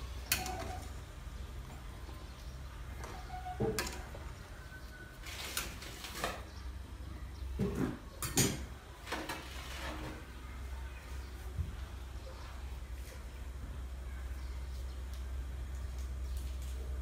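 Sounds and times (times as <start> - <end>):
steady low hum: 0.0 - 9.1.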